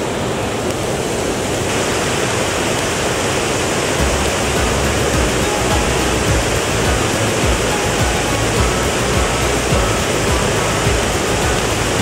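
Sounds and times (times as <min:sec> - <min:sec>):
stream rushing over rocks: 0:00.0 - 0:12.0.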